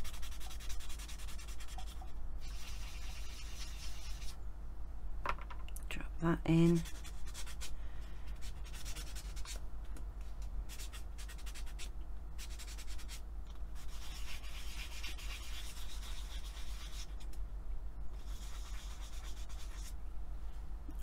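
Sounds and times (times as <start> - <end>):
sanding pad rubbing clay: 0.0 - 4.4, 6.7 - 7.7, 8.4 - 9.6, 10.7 - 13.2, 13.8 - 17.2, 18.2 - 19.9.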